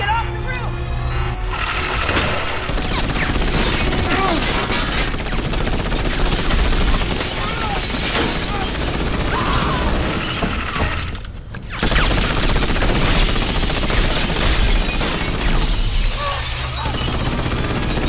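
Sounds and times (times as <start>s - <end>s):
ice and glass shattering: 14.5s - 18.0s.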